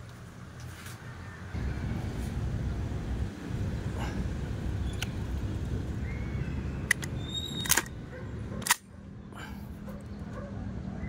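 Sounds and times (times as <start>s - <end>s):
low background rumble: 1.5s - 10.4s
sharp mechanical clicks: 6.8s - 8.0s, 8.6s - 8.9s.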